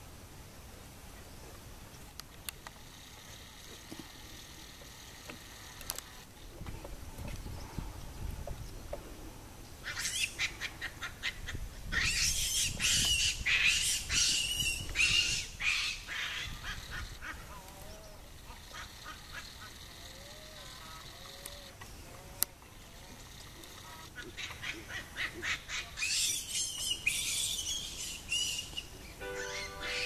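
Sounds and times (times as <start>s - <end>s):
rapid animal calls: 9.8s - 22.0s.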